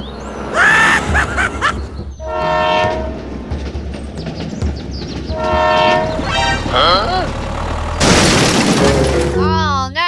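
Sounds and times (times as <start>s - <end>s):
toy train horn toot: 2.2s - 3.1s, 5.4s - 6.8s.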